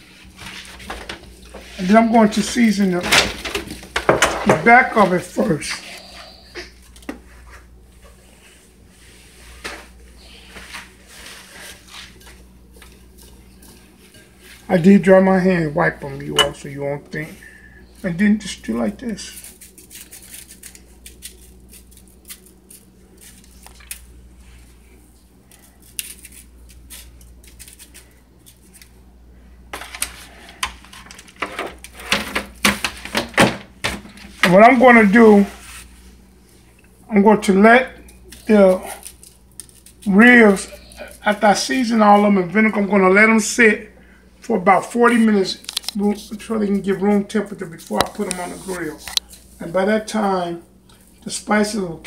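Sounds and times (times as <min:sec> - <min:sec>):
low steady hum: 0:00.0 - 0:52.0
foil pan crinkling: 0:18.6 - 0:24.1.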